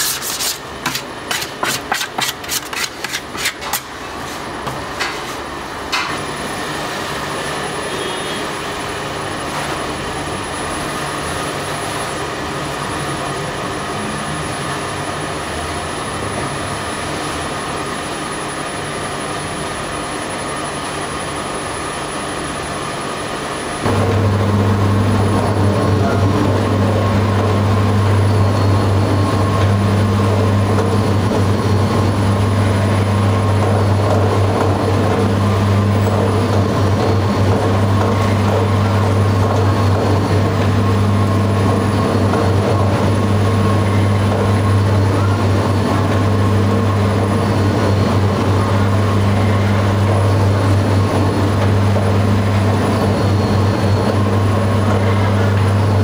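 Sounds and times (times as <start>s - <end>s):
machine motor humming: 23.8s - 56.0s.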